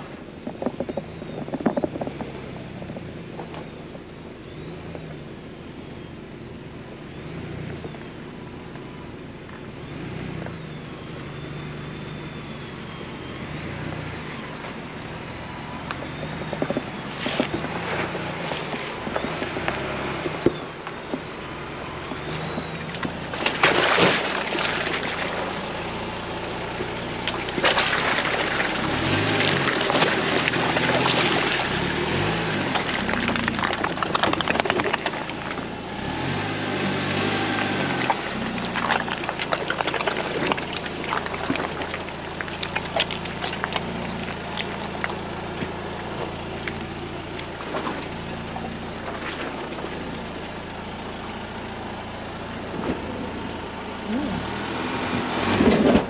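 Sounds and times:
tyre and road noise: 0.0s - 56.0s
knocks and rattles: 0.4s - 4.0s, 16.0s - 21.3s
engine rising and falling: 7.1s - 56.0s.

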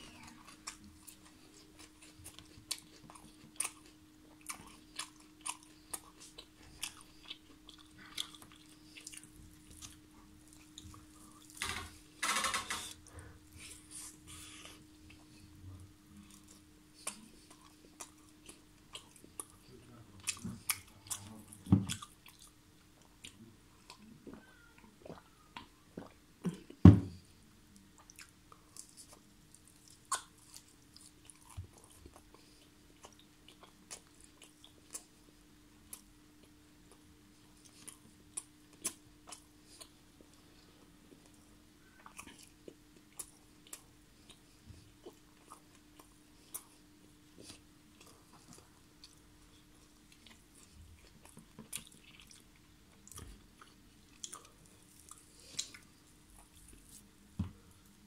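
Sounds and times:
man chewing with wet smacks: 0.0s - 12.0s, 12.9s - 58.0s.

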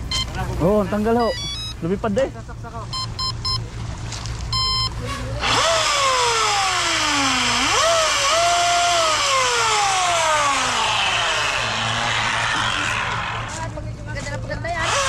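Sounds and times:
short electronic beeps: 0.0s - 2.0s, 2.9s - 3.7s, 4.5s - 5.0s
small gasoline engine revving: 5.4s - 13.7s, 14.8s - 15.0s.

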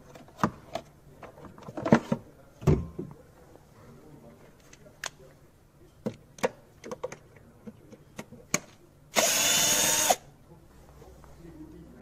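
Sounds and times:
cordless drill running: 9.2s - 10.2s.

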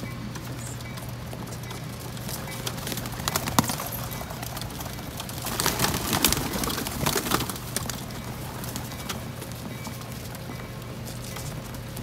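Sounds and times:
pigeons pecking roof: 0.0s - 12.0s
pigeon wings flapping: 0.4s - 12.0s.

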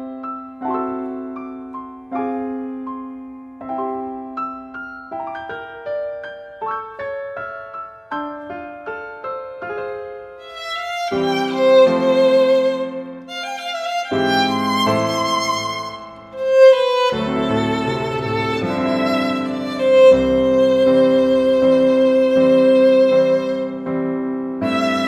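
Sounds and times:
soft piano notes: 0.0s - 25.0s
violin with vibrato: 10.4s - 23.8s, 24.6s - 25.0s.

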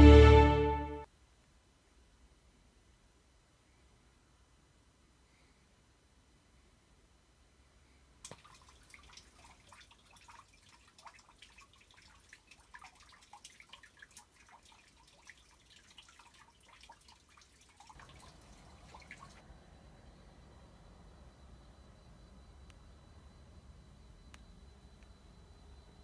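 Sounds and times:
light raindrops ticking: 8.2s - 19.4s.

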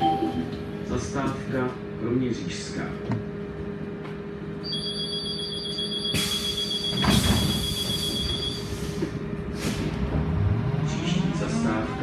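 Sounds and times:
trolleybus electrical hum: 0.0s - 12.0s
high electronic whistle: 4.6s - 8.8s.

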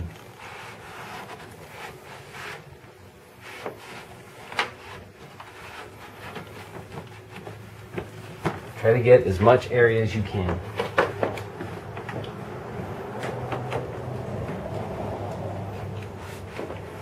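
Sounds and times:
towel wiping soft swishing: 3.3s - 9.1s.

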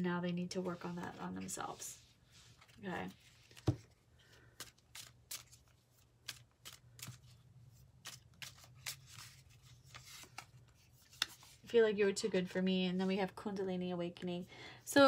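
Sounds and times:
cards being shuffled: 2.5s - 11.7s.

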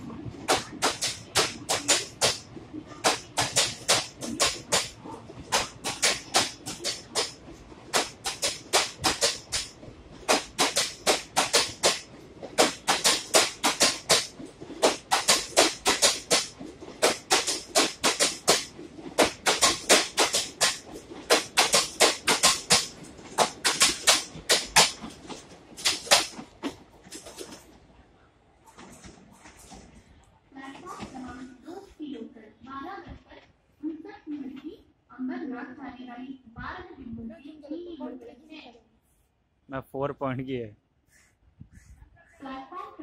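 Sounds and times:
train wheels clattering: 0.0s - 31.8s.

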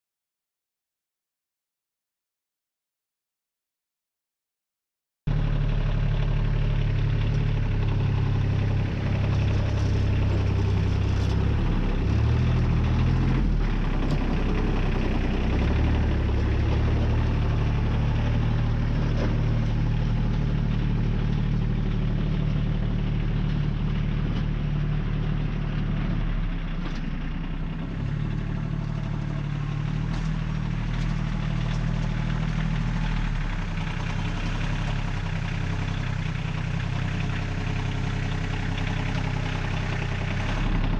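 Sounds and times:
tractor engine running: 5.3s - 40.9s.

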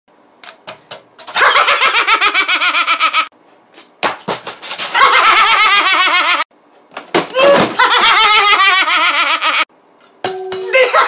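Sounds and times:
man laughing hard: 1.4s - 3.3s, 7.4s - 9.7s, 10.7s - 11.0s.

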